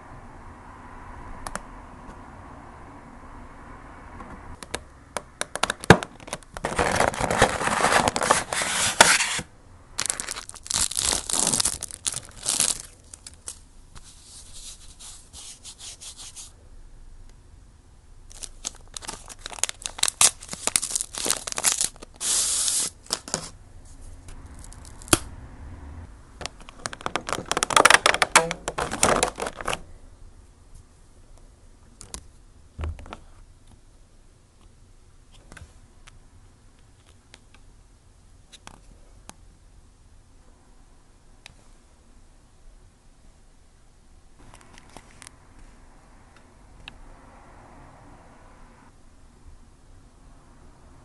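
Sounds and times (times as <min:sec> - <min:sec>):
paper and cardboard rustling: 0:06.3 - 0:16.5, 0:18.3 - 0:24.8, 0:26.8 - 0:29.8.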